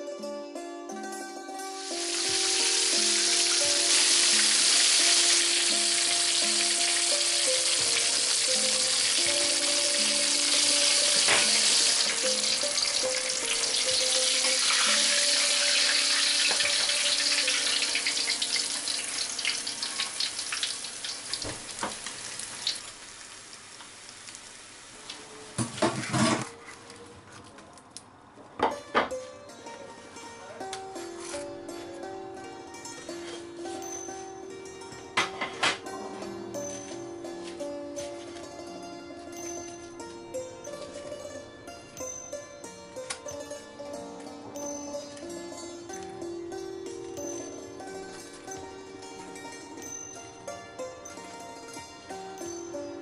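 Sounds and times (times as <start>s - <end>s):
fish sizzling in hot oil: 1.8s - 25.1s.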